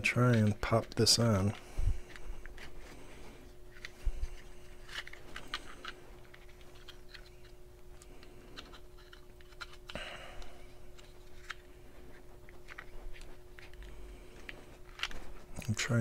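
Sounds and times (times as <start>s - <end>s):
plastic clicks and scratches: 3.6s - 10.0s, 10.9s - 15.8s.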